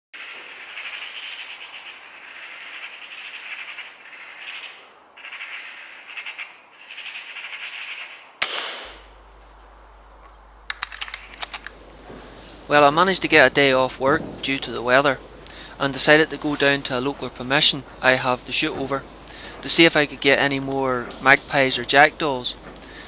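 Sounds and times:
fluttering rattle: 0.2s - 8.3s
gunshot crack: 8.4s - 9.2s
quick clicks: 10.2s - 11.8s.

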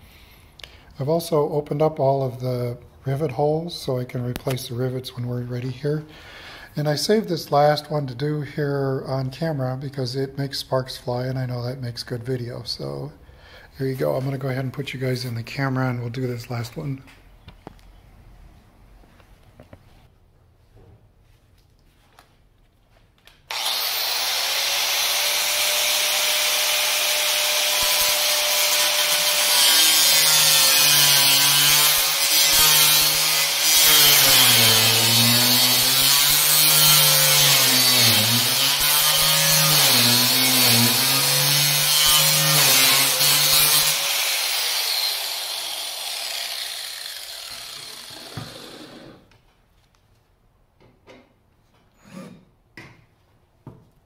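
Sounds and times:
angle grinder grinding steel: 23.5s - 49.3s.

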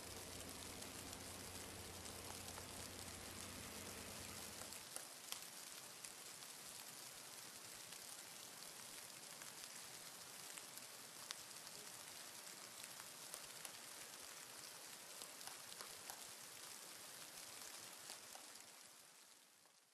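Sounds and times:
faint steady hiss: 0.0s - 19.9s
soft ticks: 15.4s - 16.2s.

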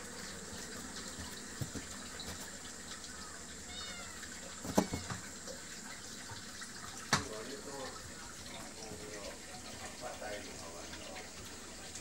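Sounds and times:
cat meowing: 3.6s - 5.2s.

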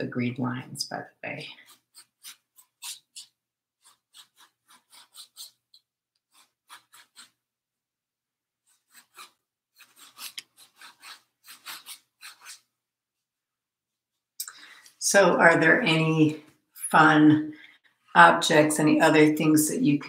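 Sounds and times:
paintbrush scrubbing on canvas: 1.5s - 7.5s, 8.6s - 13.3s.

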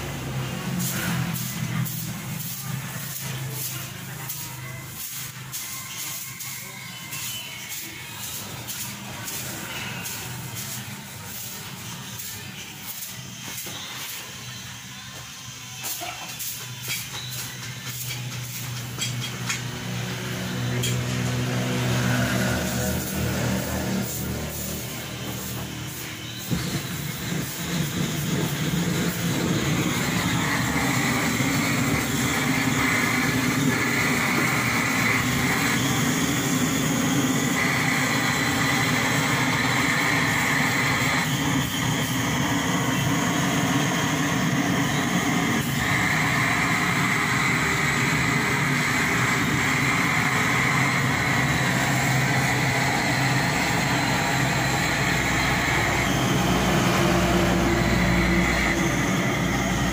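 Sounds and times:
blowtorch flame hissing: 0.0s - 14.4s, 15.8s - 59.9s.

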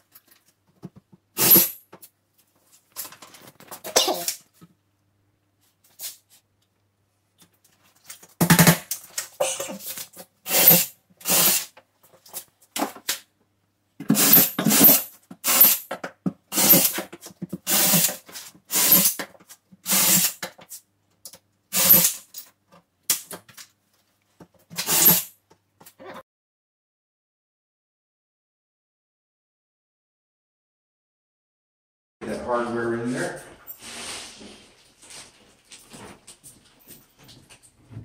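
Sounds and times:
cordless drill drilling into drywall: 1.4s - 1.8s, 10.5s - 11.7s, 14.1s - 15.9s, 16.5s - 17.0s, 17.7s - 19.2s, 19.8s - 20.4s, 21.7s - 22.2s, 24.8s - 25.3s.

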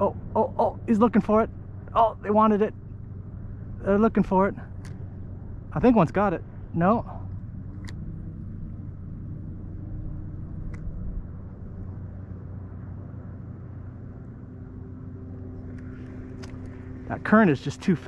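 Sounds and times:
faint hum: 0.0s - 18.0s
steady low rumble: 0.0s - 18.0s
small clicks: 4.8s - 5.1s, 7.2s - 8.1s, 10.6s - 11.0s.

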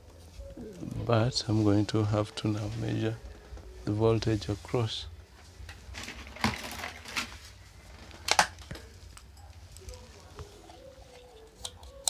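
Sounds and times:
multimeter handling clicks and rustles: 10.7s - 12.0s.

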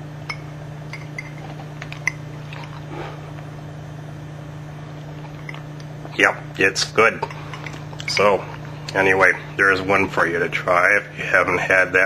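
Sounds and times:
steady low hum: 0.0s - 12.0s
person chewing quietly: 2.4s - 3.5s.

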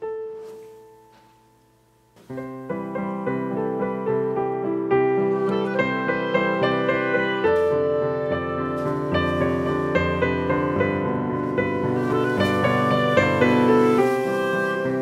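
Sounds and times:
piano keyboard playing runs: 0.0s - 15.0s
wind instruments holding notes: 5.1s - 15.0s.

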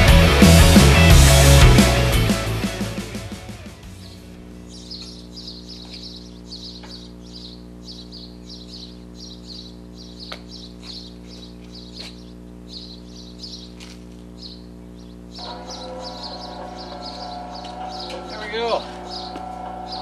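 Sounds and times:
steady low hum: 1.1s - 20.0s
small bird chirping: 4.0s - 20.0s.

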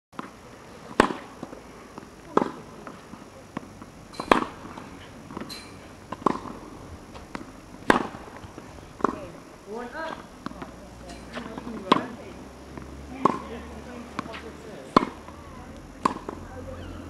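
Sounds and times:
tennis ball struck by racquets: 0.2s - 16.8s.

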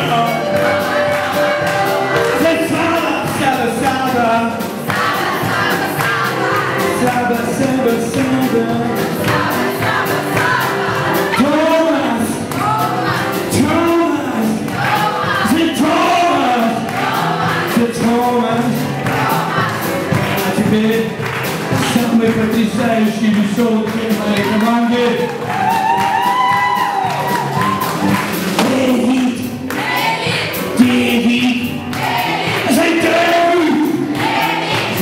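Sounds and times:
man singing into microphone: 0.0s - 1.0s, 2.2s - 4.7s, 6.8s - 9.2s, 11.3s - 12.5s, 13.5s - 16.9s, 17.6s - 19.0s, 20.2s - 25.3s, 28.6s - 29.6s, 30.7s - 31.9s, 32.6s - 34.2s
blues band playing: 0.0s - 35.0s.

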